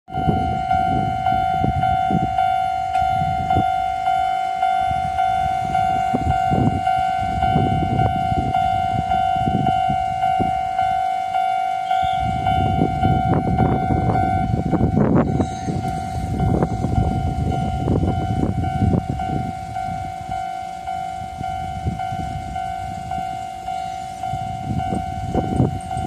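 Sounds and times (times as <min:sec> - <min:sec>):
level crossing warning bell: 0:00.1 - 0:26.0.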